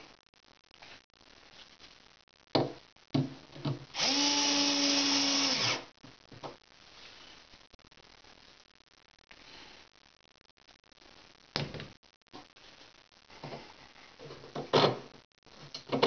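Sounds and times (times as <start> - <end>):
cordless drill driving screw: 4.0 - 5.8.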